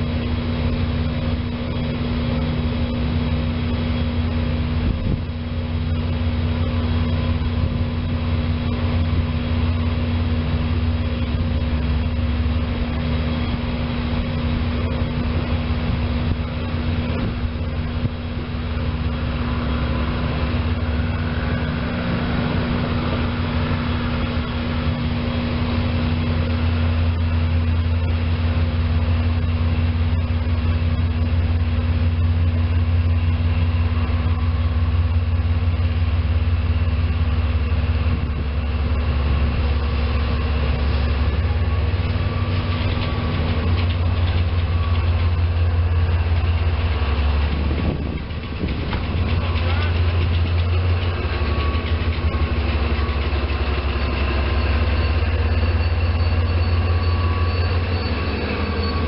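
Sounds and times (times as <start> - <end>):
diesel locomotive engine drone: 0.0 - 59.0
train wheels clattering: 38.0 - 59.0.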